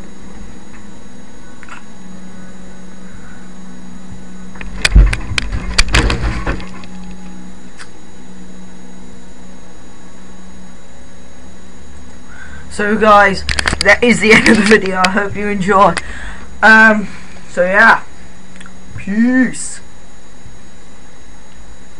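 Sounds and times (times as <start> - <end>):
steady low hum: 0.0 - 21.9
rapid knocks and thumps: 4.6 - 6.8.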